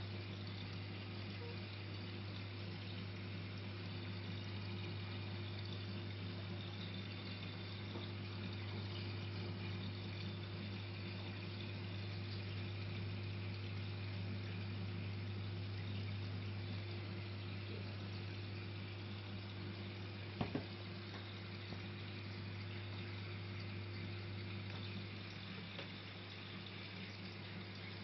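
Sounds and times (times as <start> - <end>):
aquarium pumps humming: 0.0 - 28.0
trickling water: 0.0 - 28.0.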